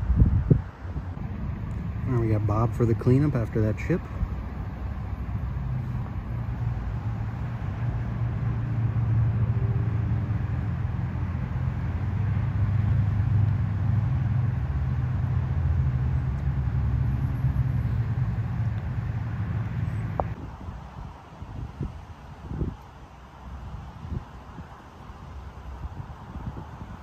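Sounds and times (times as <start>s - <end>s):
motor vehicle engine rumble: 0.0s - 21.2s.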